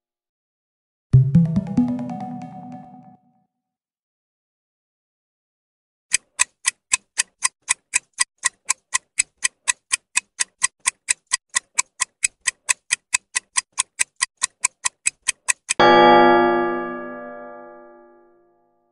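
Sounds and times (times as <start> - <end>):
clock ticking: 6.1 - 15.8.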